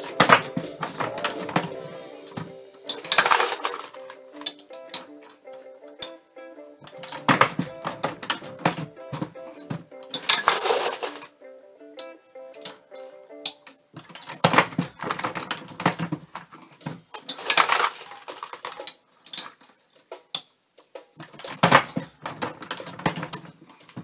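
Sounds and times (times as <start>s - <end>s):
brass cases clinking: 2.9s - 4.0s, 6.9s - 8.9s, 9.6s - 11.3s.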